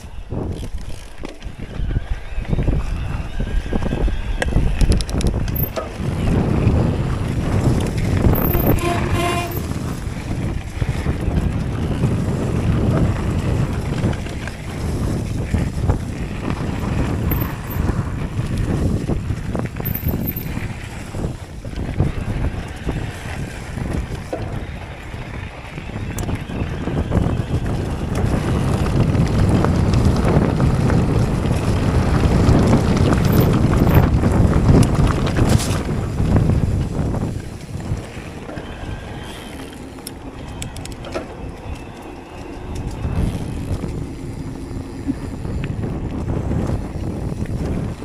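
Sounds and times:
bike rumbling and rattling on dirt: 0:00.0 - 0:48.0
wind buffeting microphone: 0:00.0 - 0:48.0.

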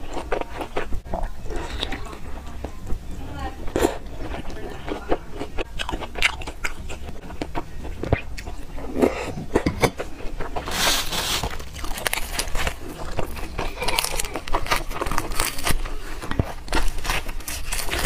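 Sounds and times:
mouth chewing wetly: 0:03.7 - 0:10.7
crackling rustle: 0:10.4 - 0:18.0.

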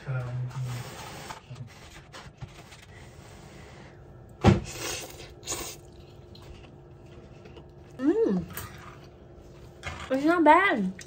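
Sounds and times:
slurping noodles: 0:04.6 - 0:06.0.

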